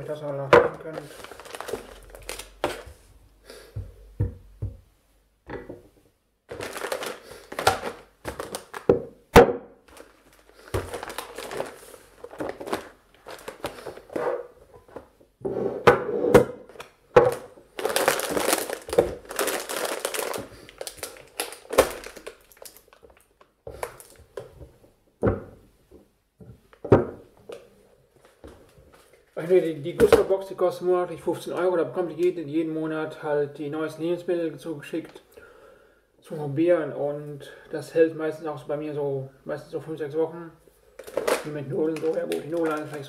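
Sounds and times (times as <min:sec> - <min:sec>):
plastic packets crinkling: 0:00.1 - 0:03.0, 0:06.5 - 0:09.0, 0:09.9 - 0:14.2, 0:16.7 - 0:24.5, 0:40.8 - 0:43.0
packaged goods knocking on table: 0:06.5 - 0:10.0, 0:10.7 - 0:11.7, 0:15.9 - 0:19.6.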